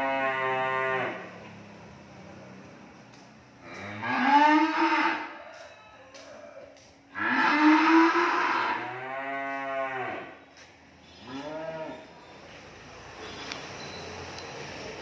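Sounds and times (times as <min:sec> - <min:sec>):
cattle mooing: 0:00.0 - 0:01.4, 0:03.6 - 0:05.3, 0:07.1 - 0:10.4, 0:11.2 - 0:12.0.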